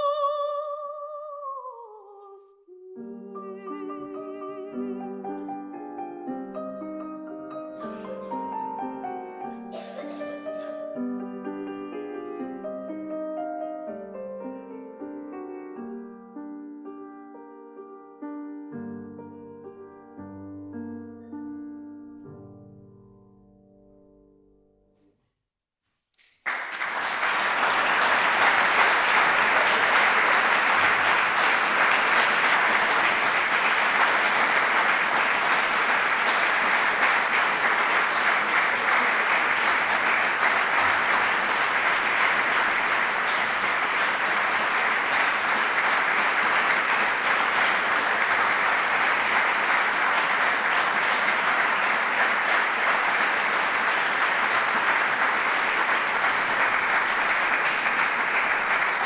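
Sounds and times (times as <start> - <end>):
audience applauding: 26.2 - 59.0.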